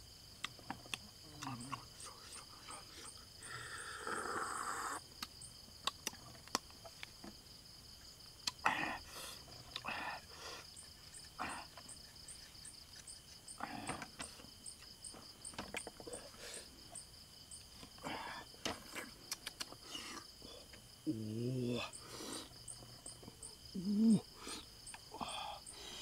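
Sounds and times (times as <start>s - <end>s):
insects trilling: 0.0s - 26.0s.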